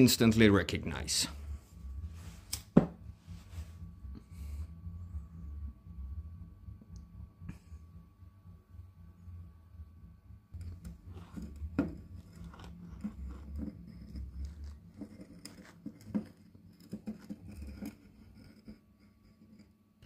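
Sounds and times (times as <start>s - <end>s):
low handling rumble: 0.0s - 15.0s.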